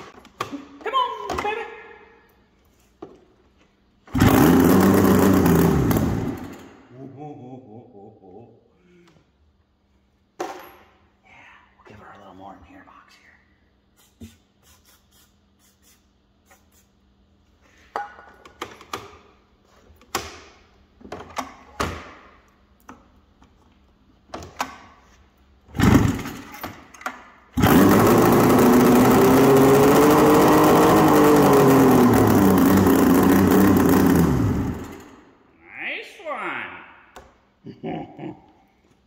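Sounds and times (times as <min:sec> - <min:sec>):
snowmobile engine cranking: 0:04.1 - 0:06.7, 0:27.6 - 0:35.1
snowmobile engine revving: 0:04.2 - 0:06.4, 0:27.6 - 0:34.9.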